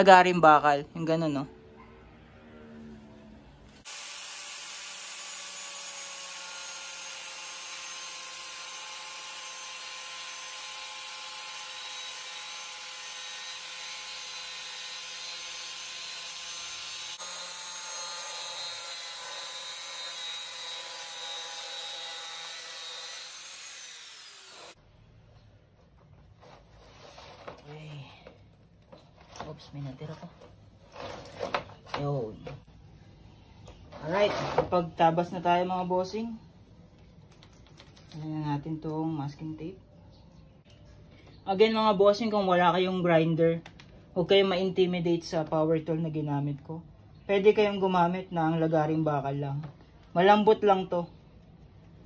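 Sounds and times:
angle grinder motor whine: 0:03.8 - 0:24.8.

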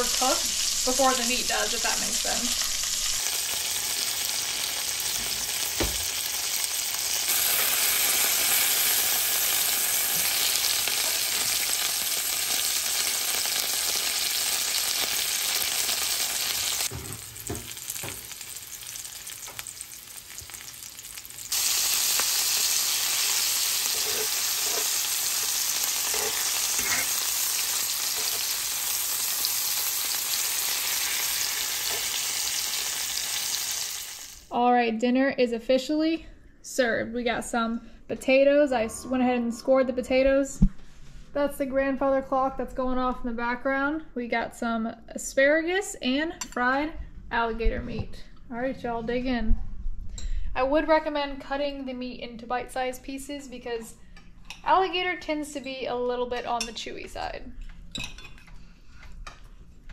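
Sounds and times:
meat frying in hot oil: 0:00.0 - 0:34.5.

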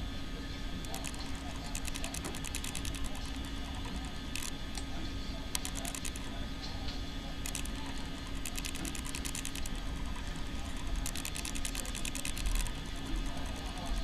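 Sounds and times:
steady low hum: 0:00.0 - 0:14.0
rapid light clicking: 0:00.8 - 0:14.0.

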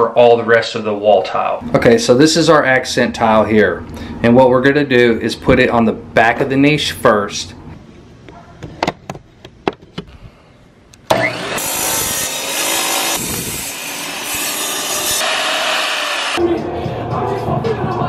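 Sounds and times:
tile saw grinding: 0:11.1 - 0:16.4.

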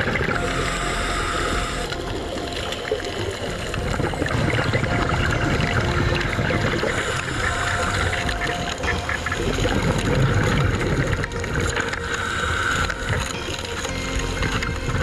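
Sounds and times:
low rumble: 0:00.0 - 0:12.0
underwater rushing hiss: 0:00.0 - 0:14.7.

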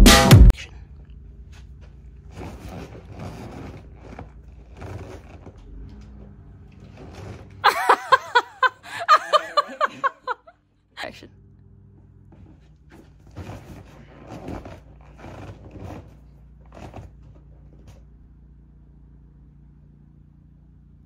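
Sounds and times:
music: 0:00.0 - 0:00.5
person laughing: 0:07.6 - 0:11.2.

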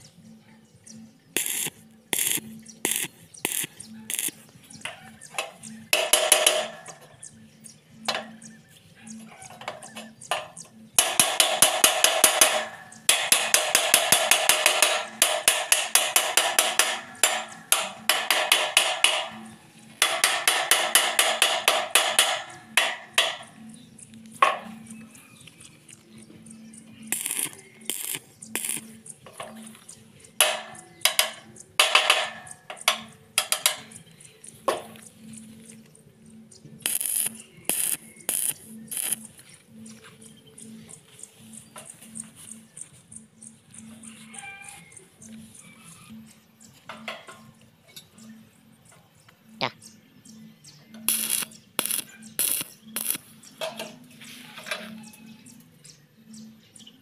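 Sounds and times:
arc welding crackling sizzle: 0:01.3 - 0:06.8, 0:11.0 - 0:25.0, 0:25.9 - 0:35.8, 0:36.8 - 0:39.5, 0:51.0 - 0:54.7.

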